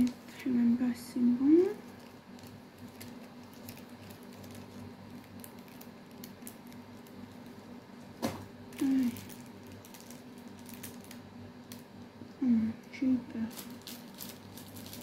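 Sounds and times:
small supplies clicking and rustling: 1.9 - 7.6, 8.2 - 11.9, 13.5 - 15.0.

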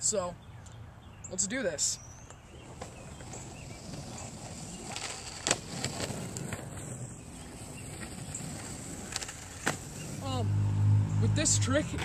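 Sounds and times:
skateboard wheels rolling on asphalt: 1.8 - 12.0.

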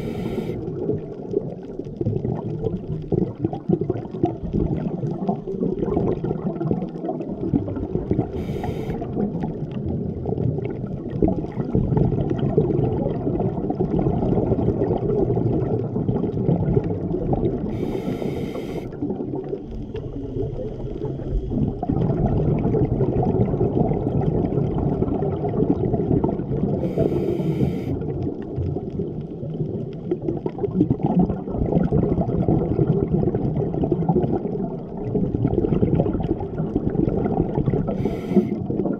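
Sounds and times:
scuba regulator breathing hiss: 0.0 - 0.6, 8.3 - 9.1, 17.7 - 18.9, 26.8 - 28.0, 38.0 - 38.6
low rumble and crackle: 0.0 - 38.9.

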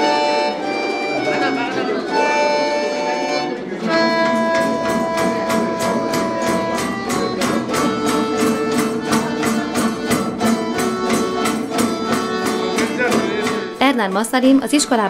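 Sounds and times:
accordion sustained notes: 0.0 - 15.0
lutes strumming fast folk tune: 0.0 - 15.0.

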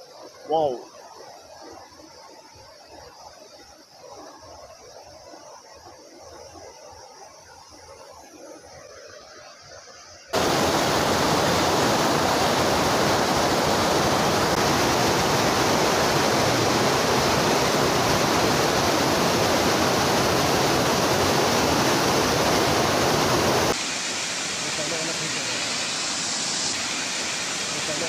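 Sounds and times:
waterfall rushing: 10.4 - 28.0.

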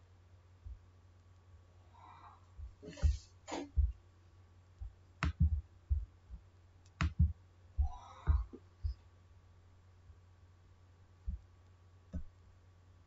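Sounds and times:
soft low thumps: 0.6 - 1.7, 2.4 - 9.1, 11.2 - 12.4.

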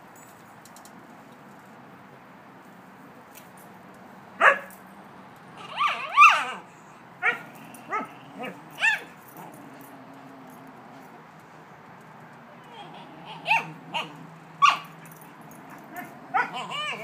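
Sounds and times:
dogs barking: 4.4 - 4.8, 7.2 - 11.2, 12.6 - 17.0
dog yowling calls: 5.6 - 10.6, 12.6 - 17.0.

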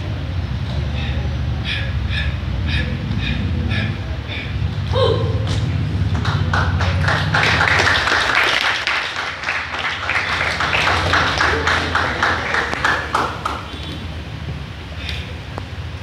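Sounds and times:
people clapping: 5.4 - 14.2.

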